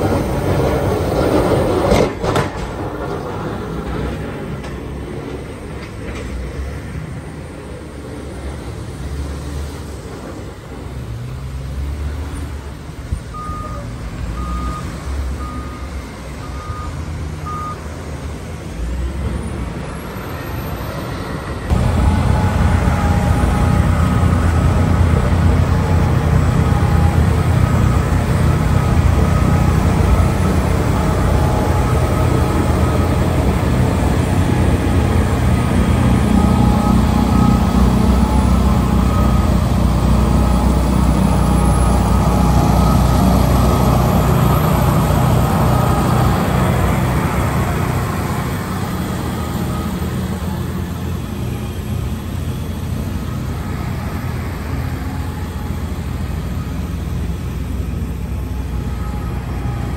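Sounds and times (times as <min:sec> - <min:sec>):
heavy diesel engines: 0:00.0 - 0:59.9
snowblower running: 0:21.7 - 0:59.9.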